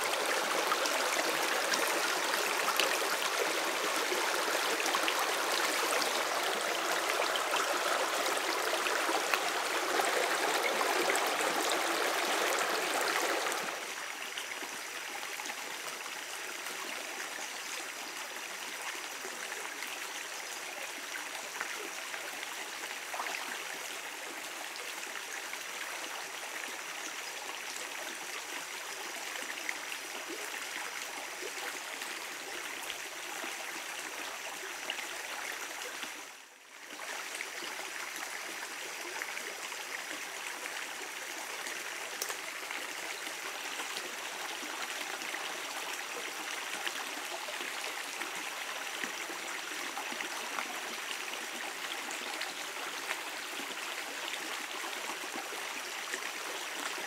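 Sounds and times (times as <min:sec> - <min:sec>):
stream water rushing over stones: 0:00.0 - 0:16.7.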